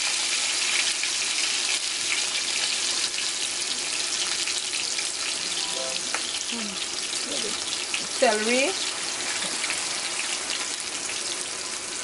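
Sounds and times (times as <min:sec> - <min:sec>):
tomatoes sizzling in oil: 0:00.0 - 0:12.0.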